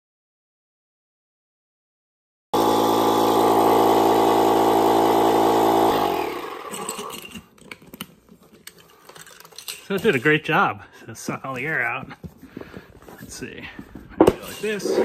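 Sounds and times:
electric pump motor hum: 2.6s - 7.2s.

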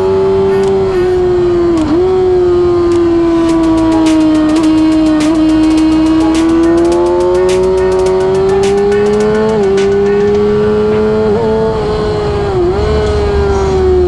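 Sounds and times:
motorcycle engine howling: 0.0s - 14.0s
sharp ticks: 2.9s - 11.1s.

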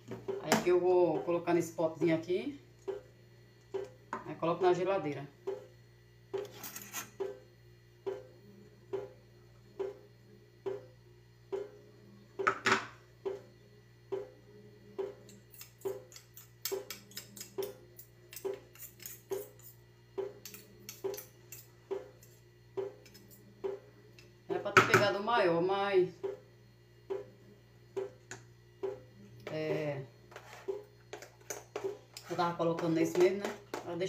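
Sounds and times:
soft regular beat: 8.0s - 11.8s, 26.2s - 28.2s
metal spoon clinking on blade: 15.3s - 19.8s.

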